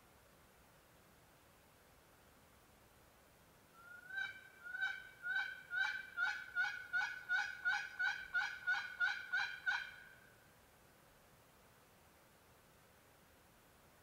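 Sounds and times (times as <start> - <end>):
turkey call yelps: 3.8 - 10.2.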